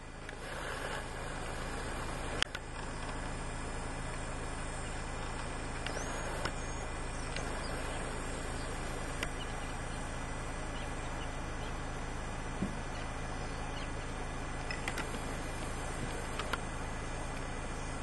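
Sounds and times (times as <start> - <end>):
outdoor background noise: 0.0 - 18.0
faint clicks: 5.2 - 6.6, 7.2 - 9.6, 14.6 - 16.7.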